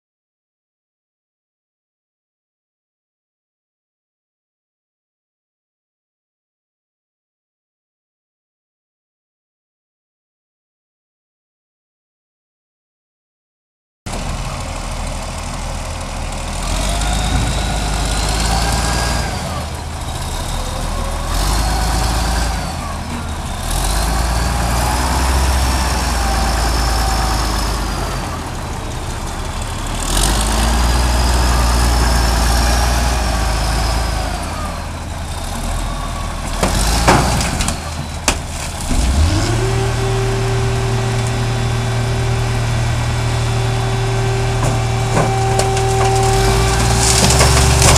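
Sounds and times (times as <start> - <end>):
diesel engine revving: 14.1 - 47.9
deep hum: 38.9 - 47.9.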